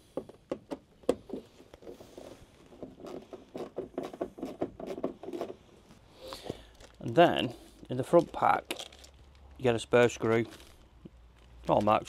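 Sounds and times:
screw clicking and scraping: 2.7s - 5.6s.

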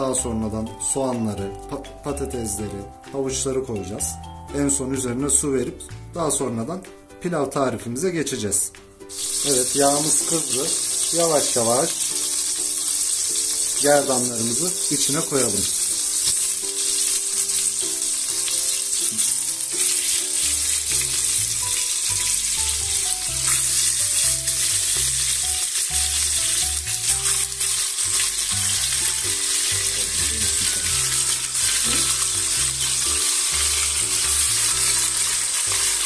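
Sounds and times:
background music: 0.0s - 36.0s
meat sizzling in hot oil: 9.0s - 36.0s.

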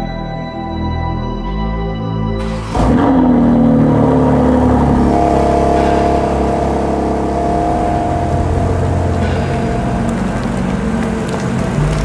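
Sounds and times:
car engine idling: 2.4s - 12.0s.

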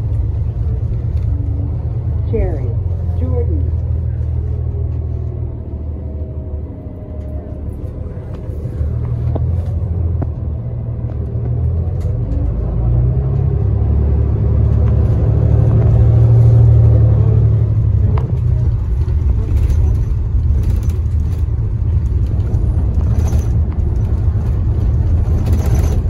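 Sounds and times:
bus cabin rumble: 0.0s - 26.0s
sharp rattles and clicks: 18.0s - 26.0s.

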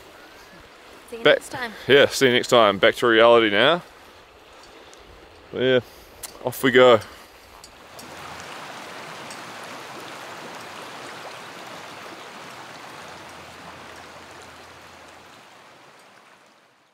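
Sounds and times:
river flowing over rocks: 6.4s - 16.9s.

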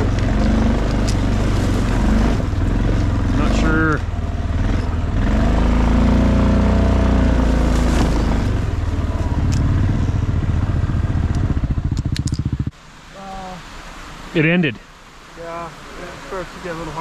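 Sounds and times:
motorcycle engine running: 0.0s - 12.9s.

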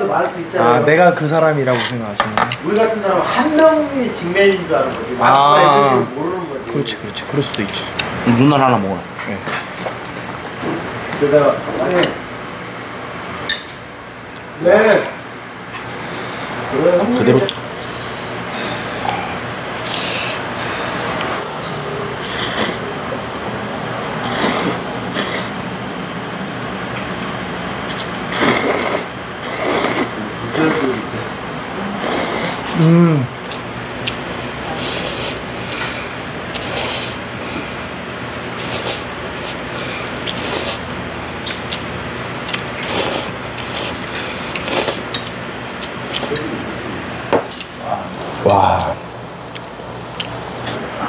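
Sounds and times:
noodles being slurped: 36.5s - 37.2s, 38.6s - 40.9s, 42.5s - 45.1s.

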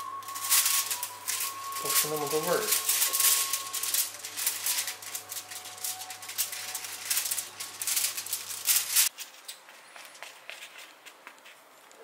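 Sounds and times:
aluminium foil crinkling: 0.0s - 9.6s.

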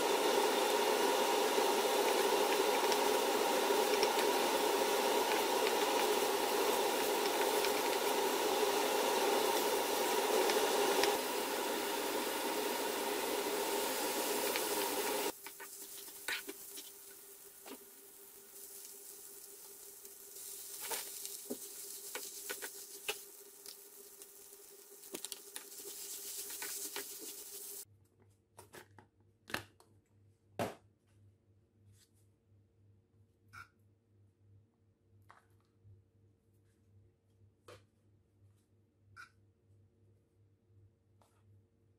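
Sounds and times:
steady hum: 0.0s - 27.8s
vegetables sizzling in a wok: 0.0s - 27.9s
wooden spatula scraping a pan: 15.3s - 17.0s, 20.4s - 23.8s, 25.1s - 27.8s.

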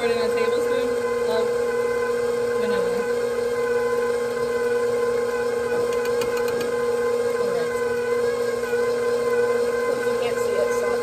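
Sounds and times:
stand mixer motor whining: 0.0s - 11.0s.

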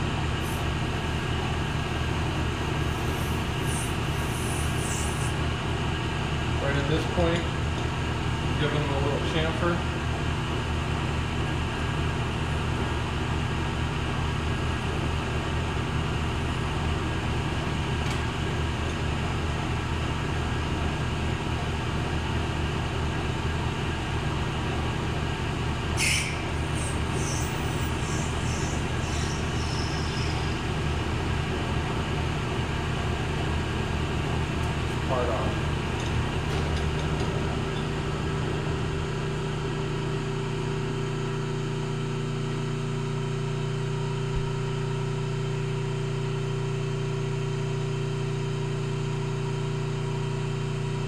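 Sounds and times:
lathe humming: 26.3s - 32.0s.

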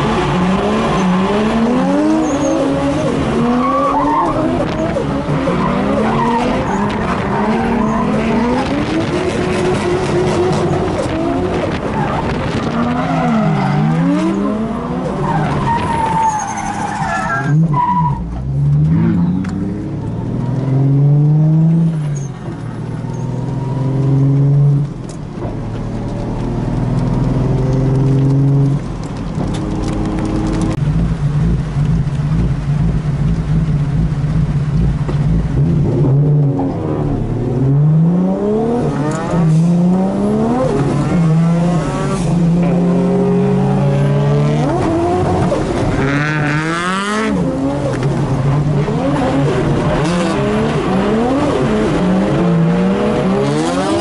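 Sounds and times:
car engine revving hard: 33.6s - 54.0s.

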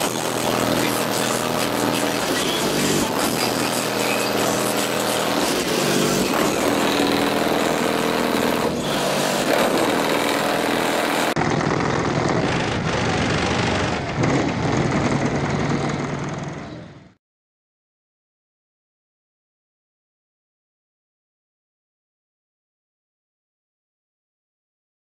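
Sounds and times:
car engine idling: 0.0s - 17.1s.

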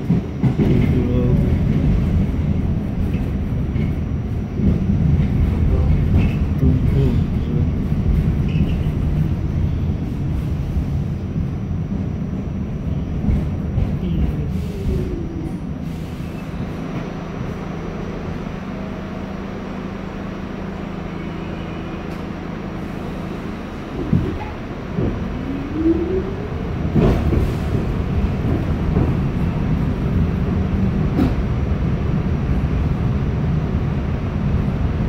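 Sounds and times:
subway car rumbling: 0.0s - 35.0s.

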